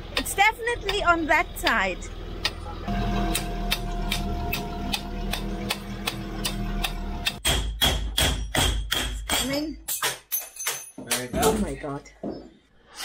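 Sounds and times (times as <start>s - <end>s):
driveline hum: 0.0s - 7.4s.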